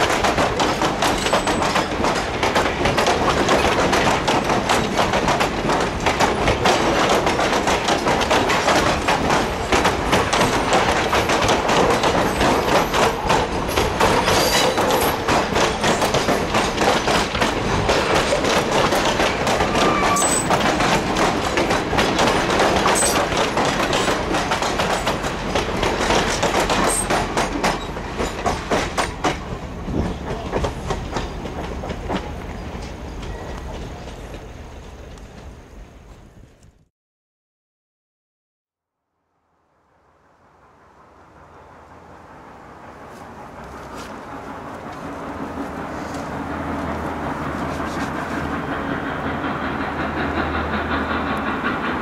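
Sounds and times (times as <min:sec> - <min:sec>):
train wheels clicking over rail joints: 0:00.0 - 0:36.3, 0:43.2 - 0:52.0.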